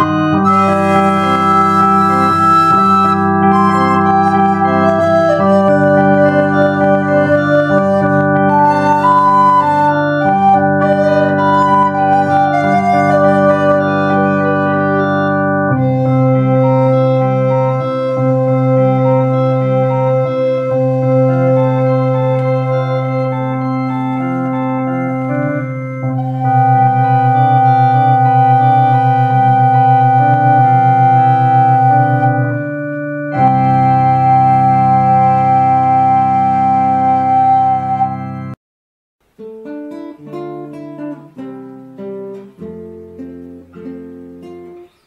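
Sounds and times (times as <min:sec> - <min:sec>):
electronic organ chords: 0:00.0 - 0:38.6
recorder melody: 0:00.0 - 0:38.6, 0:39.2 - 0:45.0.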